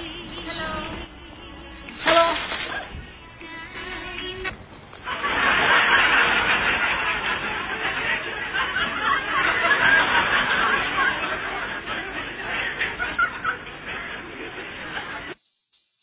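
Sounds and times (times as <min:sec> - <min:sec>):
people laughing: 0:04.9 - 0:15.4.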